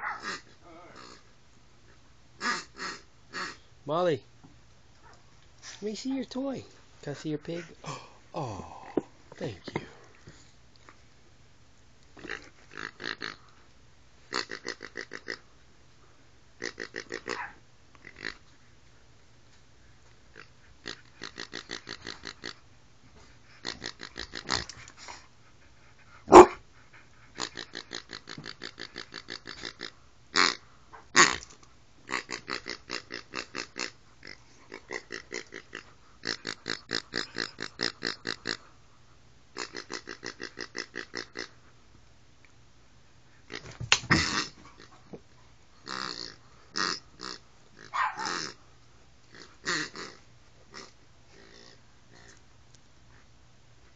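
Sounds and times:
pig toy oinking noisemaker: 0.1s - 1.3s, 12.2s - 13.4s, 14.3s - 15.4s, 16.6s - 17.4s, 18.0s - 18.4s, 20.3s - 22.6s, 23.6s - 24.7s, 27.4s - 30.6s, 32.1s - 38.6s, 39.6s - 41.6s, 45.8s - 48.6s, 49.3s - 52.4s.

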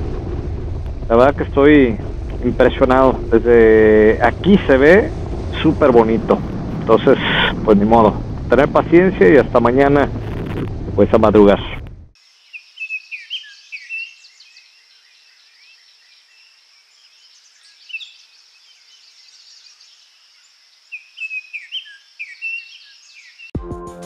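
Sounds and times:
birds chirping: 12.3s - 23.5s.

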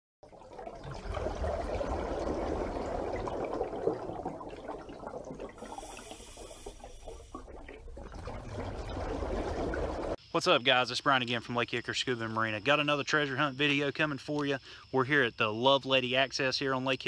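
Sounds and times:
water bubbling and trickling: 0.2s - 10.2s.

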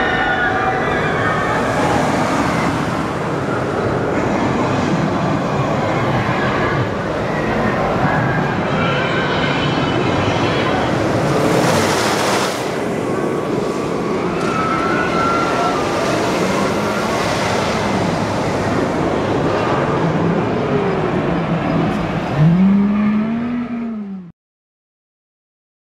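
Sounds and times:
rushing roar: 0.0s - 9.0s, 10.6s - 24.3s
rising tone: 20.3s - 24.3s.

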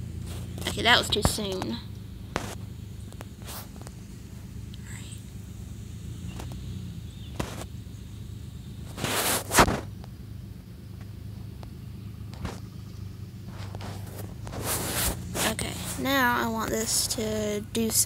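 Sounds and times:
steady low hum: 0.0s - 18.0s
short burst of noise: 8.9s - 10.0s.

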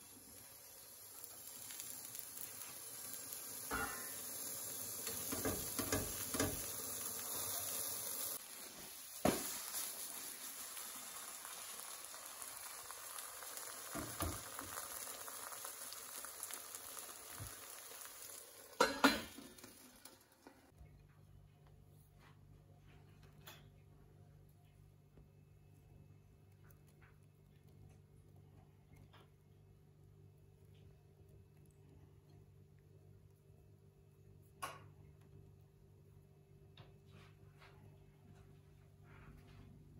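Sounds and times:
food sizzling in a frying pan: 0.0s - 20.8s.

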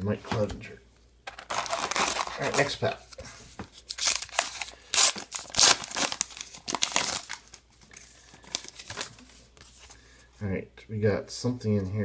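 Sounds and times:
wrapper tearing and crinkling: 1.3s - 2.8s, 3.8s - 7.6s
cards rustling: 1.3s - 10.0s.

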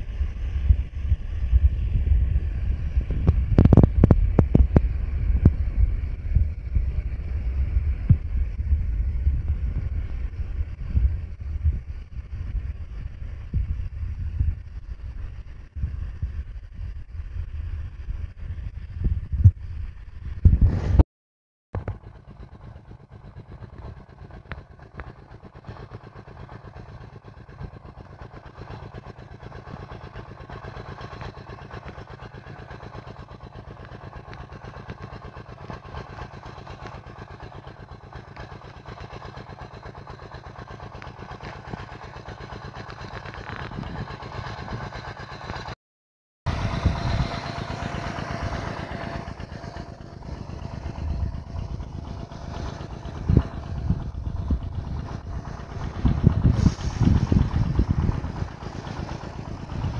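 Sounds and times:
steady hum: 0.0s - 20.0s, 46.5s - 59.9s
rain gun water jet rushing: 46.5s - 59.9s
falling spray: 56.4s - 57.4s.

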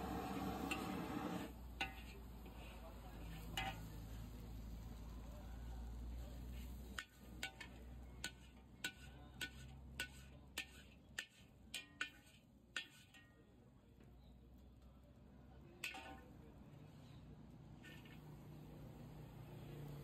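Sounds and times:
metal spatula clanking on wok: 0.2s - 4.0s, 6.8s - 13.4s, 15.8s - 16.4s.

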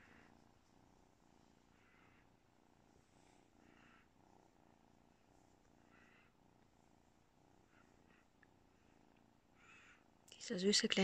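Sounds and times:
kitten purring: 0.0s - 11.0s.

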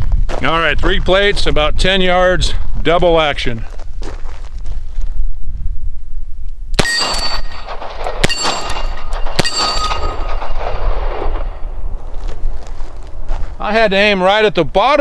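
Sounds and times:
steel plate clanging: 6.8s - 11.8s.

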